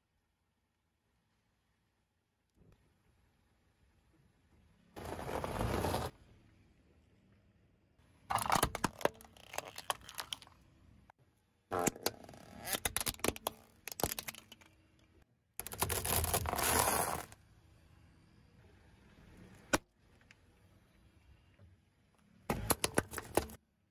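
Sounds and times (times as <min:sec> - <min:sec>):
car tyre crushing brittle objects: 0:08.3 - 0:10.6, 0:12.0 - 0:14.8, 0:15.6 - 0:17.4, 0:22.5 - 0:23.6.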